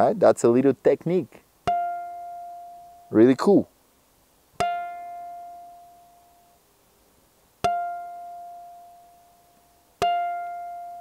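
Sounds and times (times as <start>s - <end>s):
ukulele harmonic ringing: 1.6s - 3.2s, 4.6s - 6.6s, 7.6s - 11.0s.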